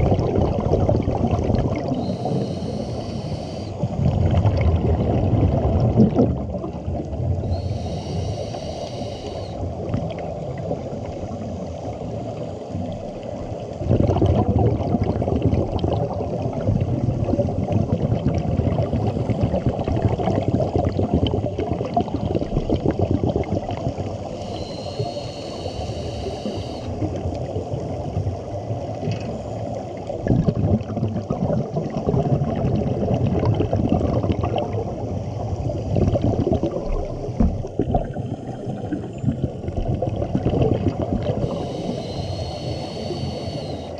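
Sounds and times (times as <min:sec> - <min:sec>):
exhaled bubbles rumbling underwater: 0:00.0 - 0:43.9
regulator inhalation hiss: 0:01.9 - 0:03.9, 0:07.4 - 0:09.7, 0:24.2 - 0:27.0, 0:41.2 - 0:43.9.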